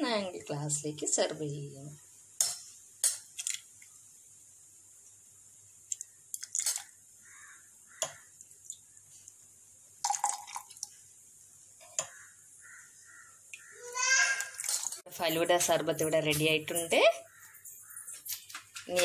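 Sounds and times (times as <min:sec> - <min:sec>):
liquid dripping and splashing: 0:05.9 - 0:06.9, 0:10.0 - 0:11.0, 0:14.3 - 0:15.1.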